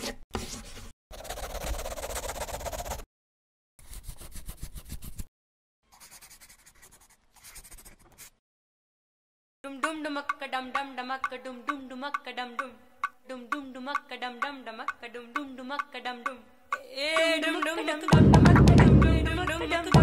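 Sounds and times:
pen scratching on paper: 0.3 - 3.1, 5.9 - 8.4.

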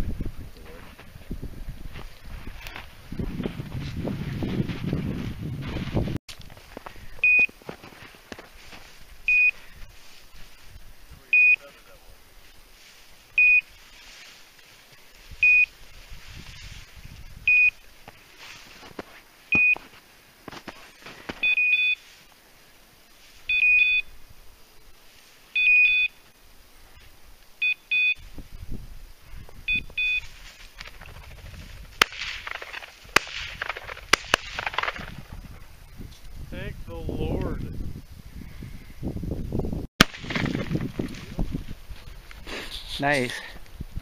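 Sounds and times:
footsteps through dry grass and snow: 0.3 - 11.2, 12.2 - 22.4, 28.2 - 36.5, 40.0 - 42.9
electronic collar beeps: 7.2 - 7.5, 9.3 - 9.6, 11.3 - 11.7, 13.4 - 13.7, 15.4 - 15.7, 17.5 - 17.8, 19.5 - 19.8, 21.4 - 22.0, 23.5 - 24.1, 25.6 - 26.2, 27.6 - 28.2, 29.7 - 30.3.

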